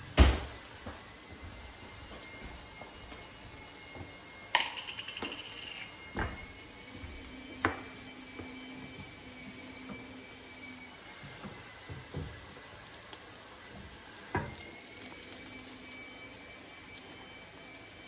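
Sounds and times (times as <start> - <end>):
thump: 0.2 - 0.5.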